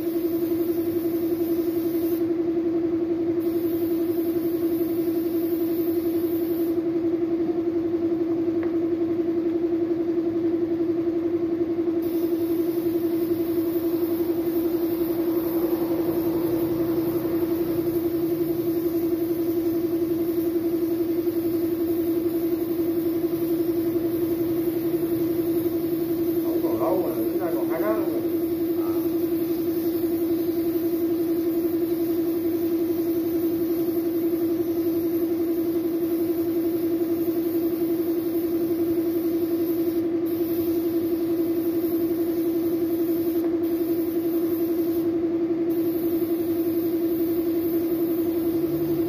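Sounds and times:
loud motor hum: 0.0s - 49.0s
spray gun hissing: 12.0s - 32.4s.

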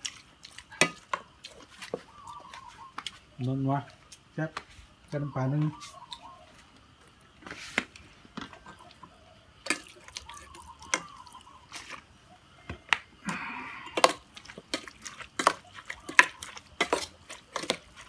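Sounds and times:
metal spoon scraping pot: 14.0s - 18.0s.

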